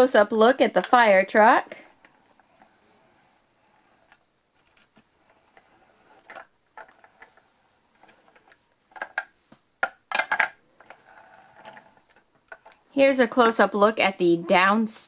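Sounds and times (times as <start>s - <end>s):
plastic toys clicking and clattering: 4.0s - 12.8s.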